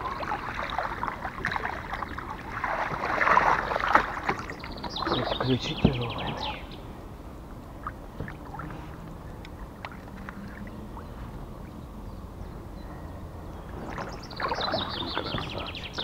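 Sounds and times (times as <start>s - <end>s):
river water splashing around boat: 0.0s - 16.0s
bird singing a rapid trill: 4.4s - 6.9s, 11.9s - 16.0s.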